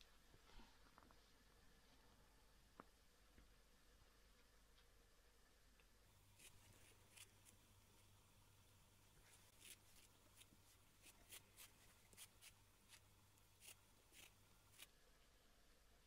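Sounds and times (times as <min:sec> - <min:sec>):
low steady hum: 0:00.0 - 0:16.0
cats licking a fabric toy: 0:09.1 - 0:14.9.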